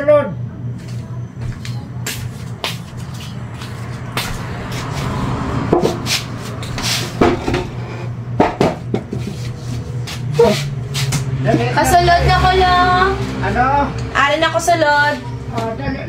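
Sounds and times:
steady low hum: 0:00.0 - 0:16.0
footsteps: 0:00.8 - 0:07.9, 0:08.5 - 0:11.7
wooden chair scraping on concrete: 0:04.7 - 0:11.2.

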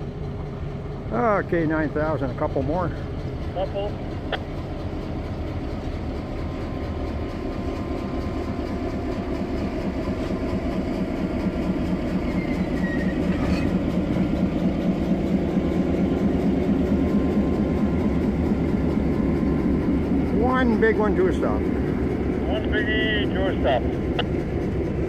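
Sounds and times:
diesel engine pulsing: 0:00.0 - 0:25.0
train wheels rolling on rail: 0:00.0 - 0:25.0
wheel squealing on rail: 0:12.0 - 0:14.2.

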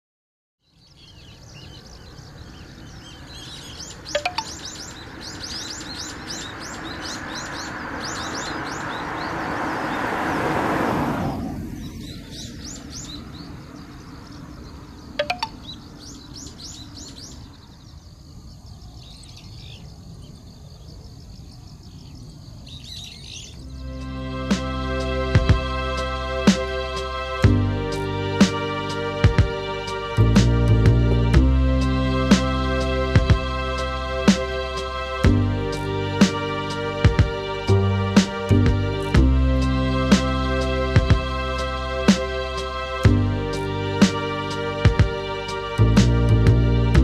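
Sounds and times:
small birds chirping: 0:00.6 - 0:10.1, 0:11.7 - 0:23.9
passing vehicle: 0:01.5 - 0:17.7, 0:23.5 - 0:47.0
low outdoor rumble: 0:23.6 - 0:47.0.

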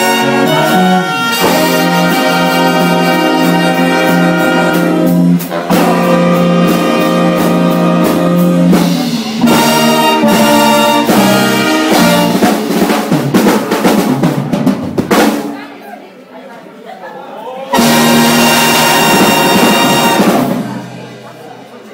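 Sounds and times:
brass section holding chords: 0:00.0 - 0:12.6, 0:17.7 - 0:20.9
jazz big band playing: 0:00.0 - 0:15.6, 0:17.7 - 0:21.6.

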